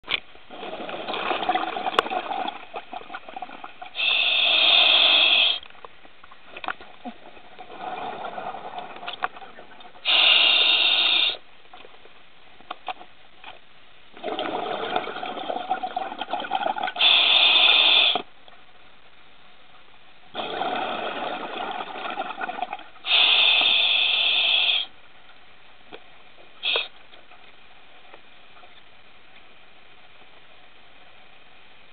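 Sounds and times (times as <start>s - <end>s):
regulator inhalation hiss: 4.0s - 5.6s, 10.0s - 11.4s, 17.0s - 18.2s, 23.0s - 24.9s, 26.6s - 26.9s
bubbling exhaled air: 20.4s - 24.9s.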